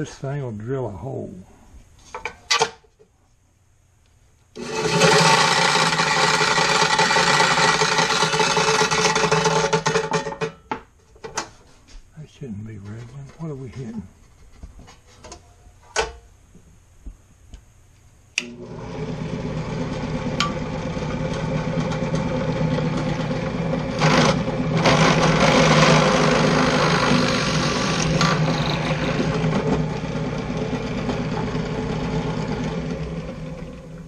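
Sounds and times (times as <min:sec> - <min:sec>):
drill bit boring into wood: 0:04.6 - 0:10.0, 0:18.4 - 0:34.0
drill press motor humming: 0:04.6 - 0:10.0, 0:18.4 - 0:34.0.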